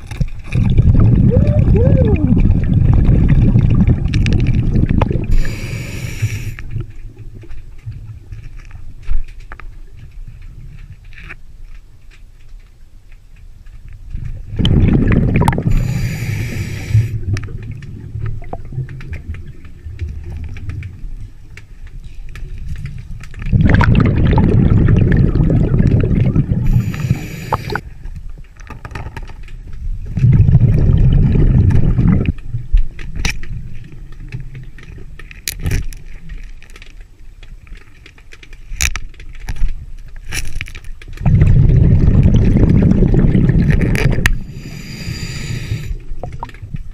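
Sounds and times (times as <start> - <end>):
stones clicking underwater: 0.0 - 5.6, 6.7 - 15.7, 17.2 - 44.4
exhaled bubbles underwater: 0.0 - 7.6, 14.3 - 21.4, 22.6 - 28.0, 29.8 - 35.1, 41.2 - 46.9
regulator hiss: 5.4 - 6.6, 15.7 - 17.2, 26.7 - 27.8.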